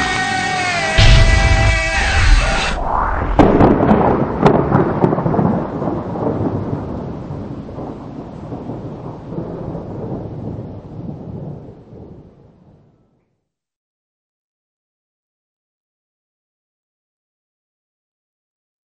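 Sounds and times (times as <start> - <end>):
sharp crackles: 0.4 - 5.4
thunder rumble: 1.0 - 12.9.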